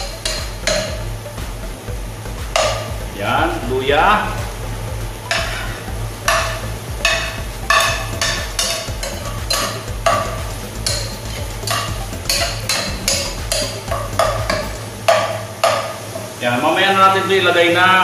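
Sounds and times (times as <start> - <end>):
steady low hum: 0.0 - 16.5
light sizzle: 4.4 - 16.9.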